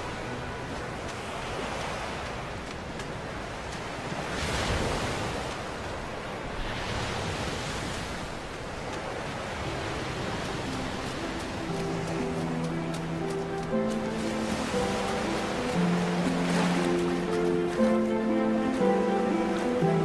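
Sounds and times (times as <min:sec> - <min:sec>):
soft music: 0:00.0 - 0:02.4, 0:09.4 - 0:20.0
surf washing onto beach: 0:00.0 - 0:20.0.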